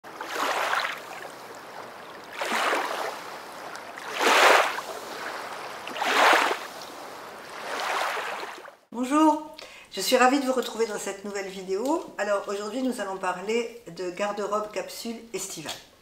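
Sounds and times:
small waves breaking on shore: 0.0s - 8.9s.

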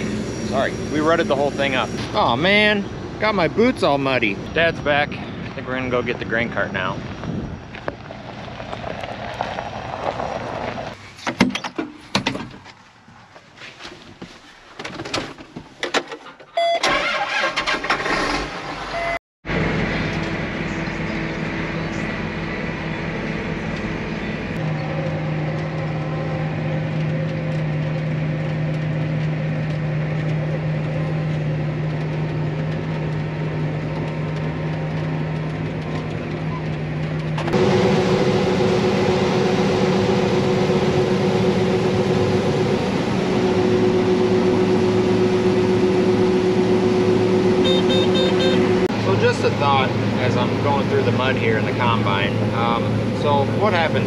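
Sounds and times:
combine harvester humming: 0.0s - 6.5s, 19.0s - 54.0s
tractor diesel engine running: 0.0s - 6.9s, 16.3s - 54.0s.

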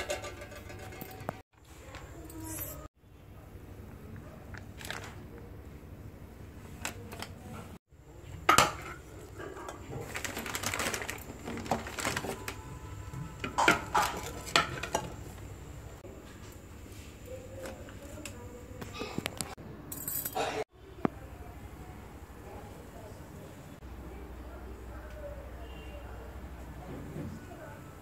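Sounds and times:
eggshell clinking on metal plate: 0.0s - 1.3s
plastic bag rustling: 4.8s - 5.2s, 9.8s - 12.8s.

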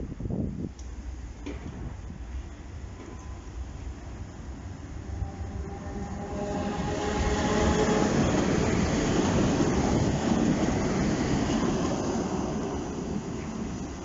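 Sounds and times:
train wheels rumbling on track: 0.0s - 14.0s
thin whine of steady tones: 2.3s - 8.7s.

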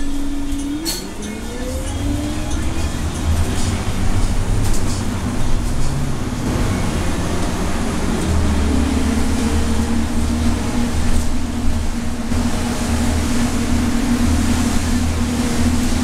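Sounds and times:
bus engine drone: 0.0s - 16.0s.

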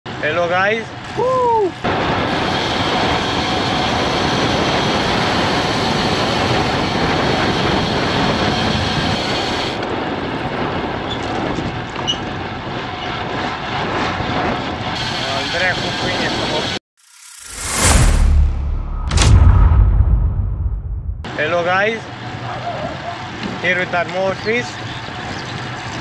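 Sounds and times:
wind rushing over microphone: 1.4s - 21.3s
tyre roar on asphalt: 1.9s - 15.1s, 24.3s - 26.0s.

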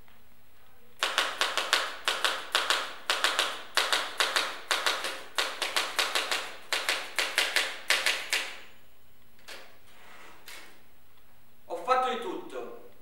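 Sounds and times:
typewriter keys striking: 1.0s - 8.7s.

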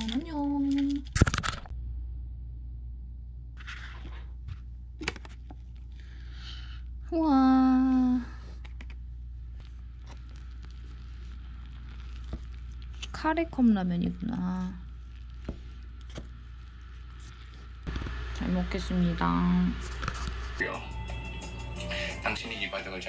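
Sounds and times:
steady low hum: 0.0s - 23.0s
paper lid rustling and tearing: 3.6s - 4.3s.

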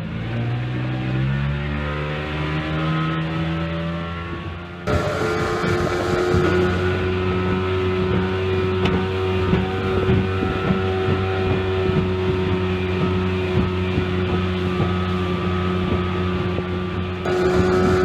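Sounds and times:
outboard motor running: 4.3s - 18.0s.

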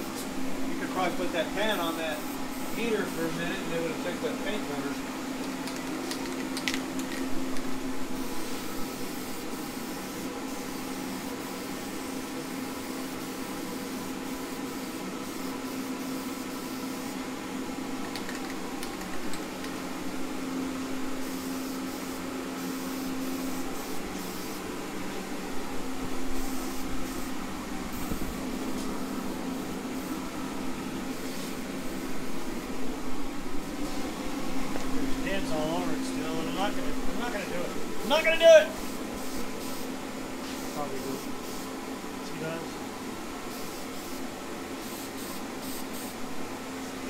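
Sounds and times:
steady low hum: 0.0s - 47.0s
aerosol spray can hissing: 21.2s - 24.7s, 26.3s - 28.3s, 38.8s - 39.9s, 43.5s - 44.2s, 44.8s - 46.2s.

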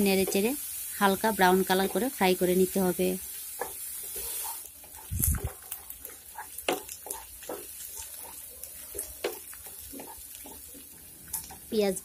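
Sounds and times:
onion sizzling in oil: 0.0s - 12.0s
spatula scraping frying pan: 3.3s - 11.7s.

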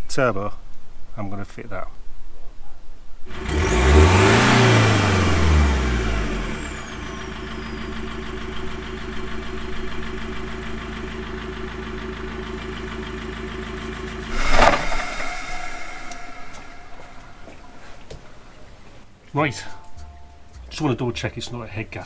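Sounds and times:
diesel engine revving and idling: 3.3s - 17.4s
brief loud noise: 14.3s - 18.3s.

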